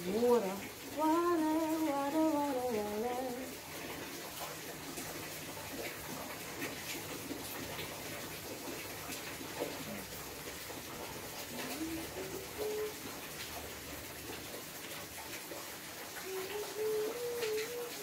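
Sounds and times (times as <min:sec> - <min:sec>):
steady rain falling: 0:00.0 - 0:18.0
woman humming: 0:11.6 - 0:13.0, 0:16.2 - 0:18.0.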